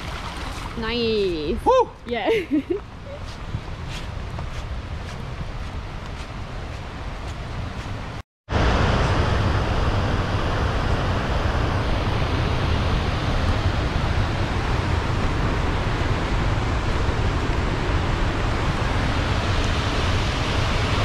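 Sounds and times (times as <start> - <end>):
waterfall and river rapids rushing: 12.4 - 21.0.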